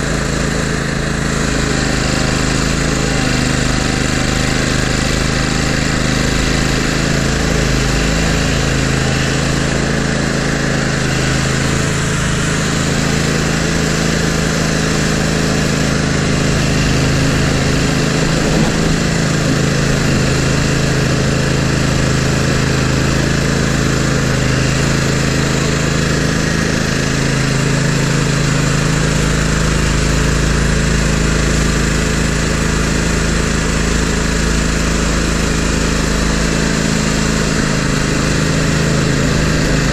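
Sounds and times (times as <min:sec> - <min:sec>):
mower engine humming: 0:00.0 - 0:39.9.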